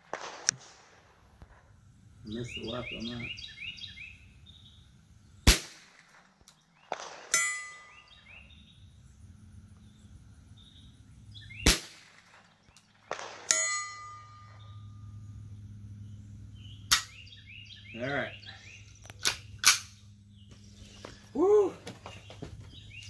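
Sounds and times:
rifle shot crack: 0.0 - 1.6, 5.4 - 7.4, 11.6 - 13.6
steel gong clang ringing: 13.5 - 15.1.

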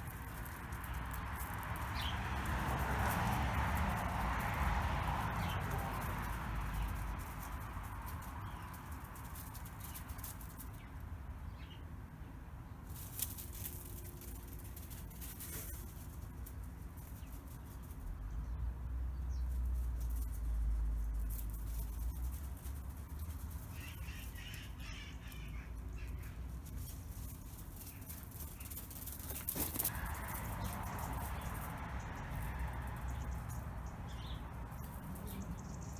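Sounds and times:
low outdoor rumble: 0.0 - 10.9
dog paws on gravel: 0.0 - 11.0, 12.9 - 18.2, 19.4 - 35.6.

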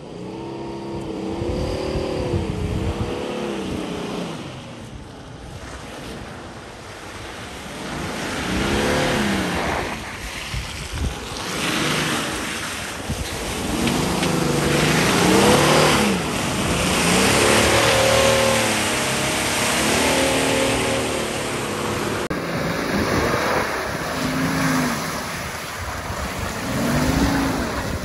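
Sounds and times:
diesel engine revving: 0.0 - 4.8, 13.4 - 28.0
tyre and wind noise: 1.0 - 28.0.

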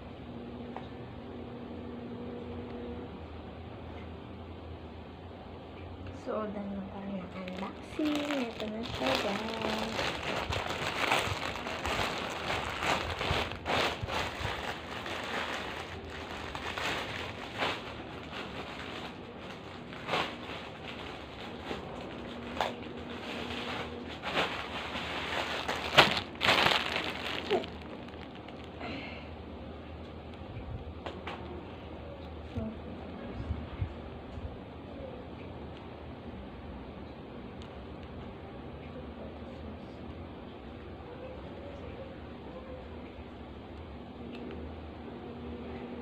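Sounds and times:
plastic bag crinkling: 7.3 - 29.0.

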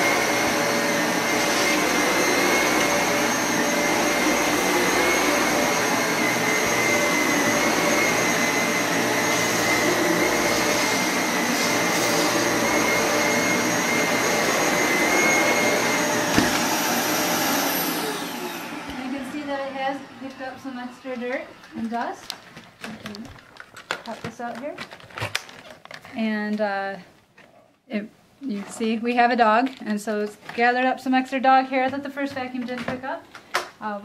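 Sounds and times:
vacuum cleaner running: 0.0 - 22.4.

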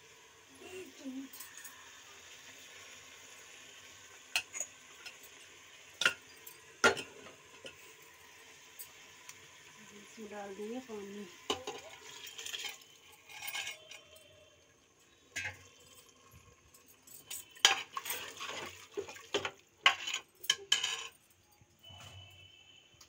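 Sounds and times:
metal ladle clanking and scraping pot: 4.4 - 5.4, 11.5 - 14.2, 15.3 - 15.8, 17.2 - 21.2.

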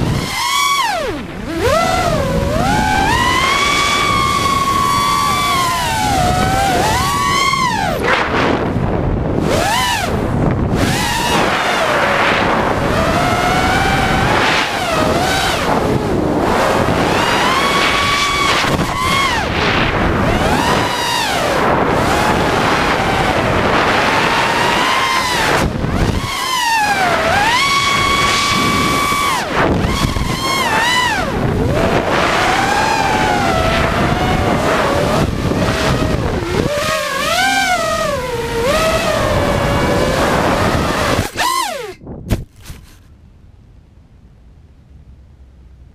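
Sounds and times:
quadcopter motors whining: 0.0 - 43.1
wind noise on microphone: 0.0 - 43.2.

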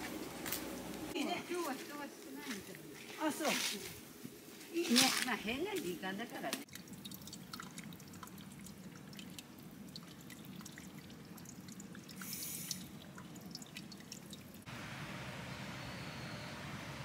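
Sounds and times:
water dripping over rocks: 6.4 - 14.7
steady hiss: 12.2 - 12.9.

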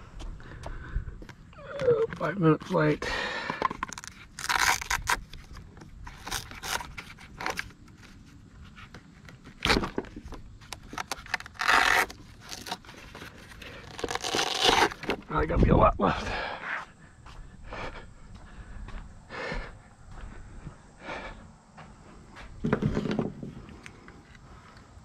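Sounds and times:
battery scraping against foam: 3.7 - 15.2.

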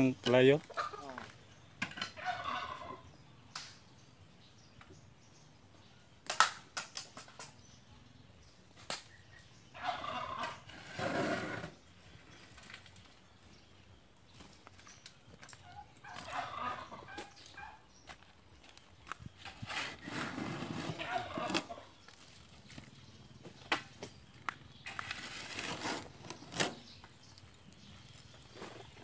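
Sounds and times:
shovel scraping soil: 10.4 - 11.8, 19.4 - 21.8, 24.9 - 26.9.

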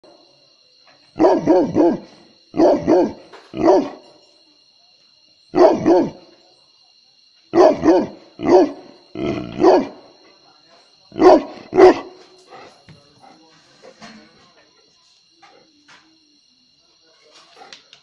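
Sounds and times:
large dog barking deeply: 1.2 - 4.0, 5.6 - 6.2, 7.5 - 10.1, 11.1 - 12.2.

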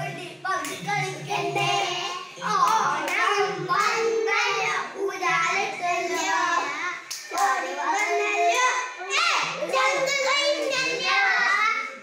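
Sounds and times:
children singing folk song: 0.0 - 12.0
hand claps: 2.6 - 4.0, 7.0 - 8.7.

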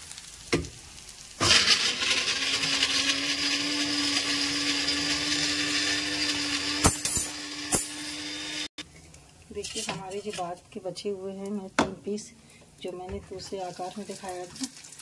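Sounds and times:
small electric motor humming: 1.8 - 8.7.

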